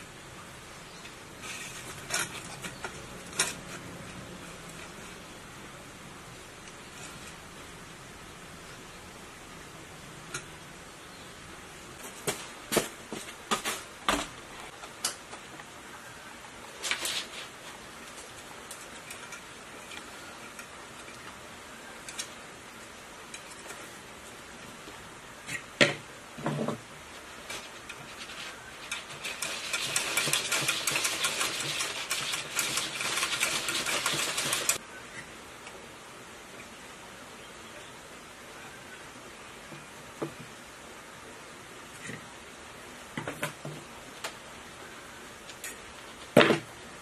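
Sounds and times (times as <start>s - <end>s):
fast rattle of ticks: 27.5s - 34.8s.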